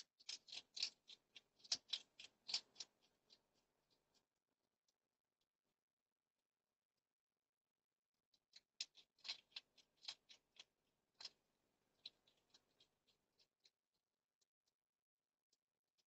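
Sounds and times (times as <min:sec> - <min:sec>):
hedgehog crunching dry food: 0:00.1 - 0:04.2, 0:08.5 - 0:13.7.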